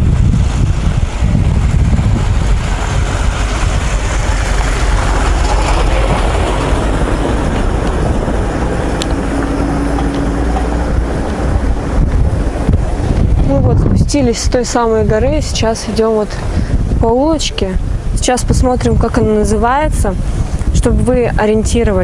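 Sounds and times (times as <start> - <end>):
wind rumbling on microphone: 0.0 - 22.0
car passing on dirt road: 0.1 - 13.7.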